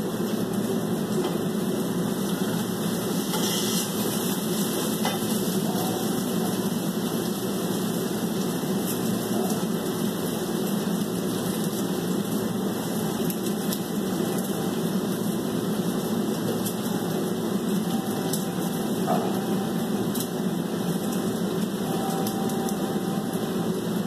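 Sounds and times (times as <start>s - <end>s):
low whirring hum: 0.0s - 24.0s.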